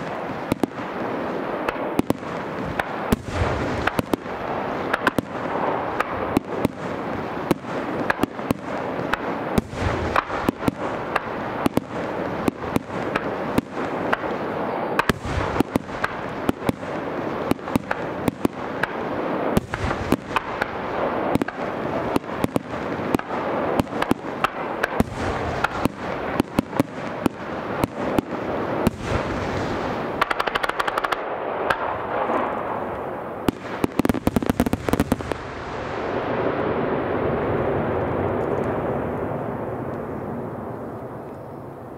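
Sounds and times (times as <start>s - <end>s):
heavy firework bursts: 0.0s - 40.6s
fireworks bangs: 0.0s - 41.9s
fireworks crackle: 0.0s - 41.9s.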